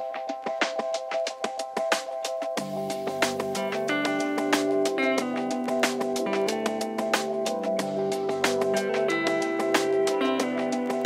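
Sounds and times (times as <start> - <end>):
plucked guitar-like instrumental music: 2.6 - 11.0.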